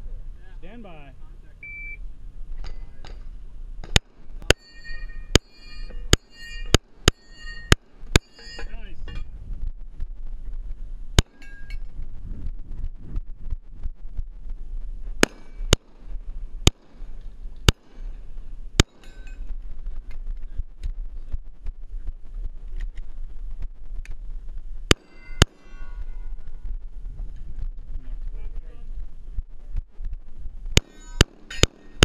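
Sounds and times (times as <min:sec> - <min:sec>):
steel targets ringing: 0:03.8 - 0:09.3, 0:18.8 - 0:19.5, 0:24.9 - 0:26.5, 0:30.8 - 0:32.0
pistol shots: 0:11.2 - 0:11.6, 0:15.2 - 0:18.2, 0:18.8 - 0:19.3, 0:24.9 - 0:25.7, 0:30.8 - 0:32.0.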